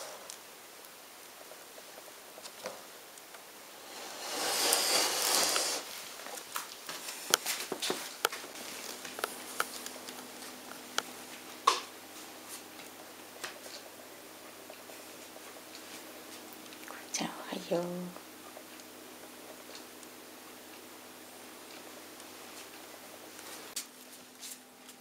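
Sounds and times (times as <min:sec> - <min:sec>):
rustling: 0:01.3 - 0:13.9
sharp clicks and taps: 0:09.0 - 0:11.1.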